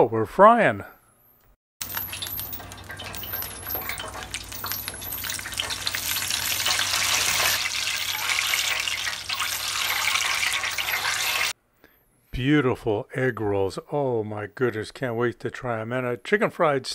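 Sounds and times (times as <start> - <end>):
oil crackling in deep fryer: 1.8 - 11.6.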